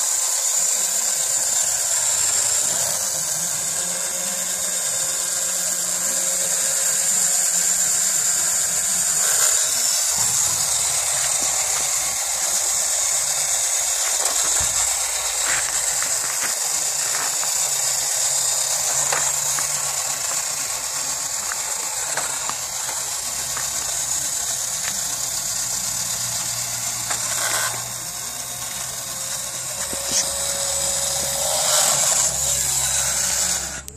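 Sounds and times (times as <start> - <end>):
toy car motor and gears: 0.0 - 33.9.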